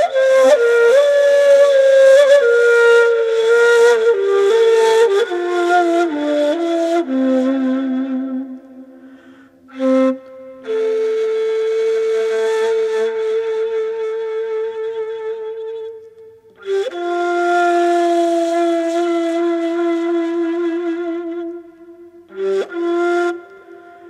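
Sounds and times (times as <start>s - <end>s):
breathy reed flute notes: 0.0s - 24.0s.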